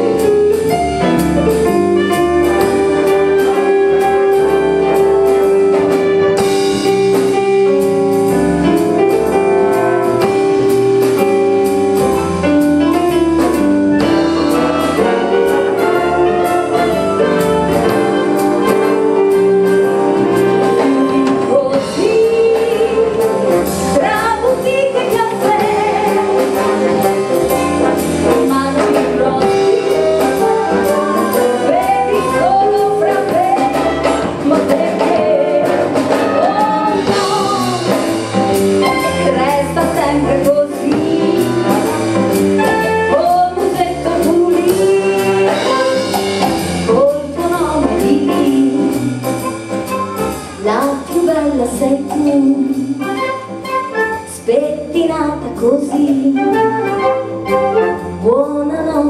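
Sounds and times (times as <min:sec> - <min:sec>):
big band playing: 0:00.0 - 0:59.0
woman singing into a microphone: 0:20.7 - 0:26.7, 0:28.4 - 0:38.0, 0:39.2 - 0:42.0, 0:43.1 - 0:46.0, 0:46.9 - 0:49.0, 0:50.6 - 0:52.9, 0:54.3 - 0:56.9, 0:58.2 - 0:59.0.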